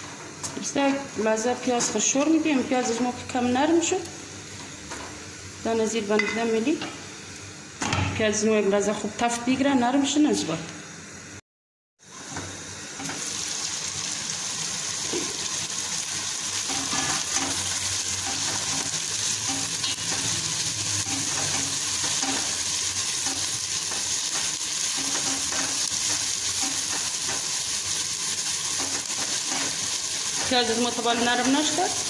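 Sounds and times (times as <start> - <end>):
onions sizzling in oil: 12.1 - 32.0.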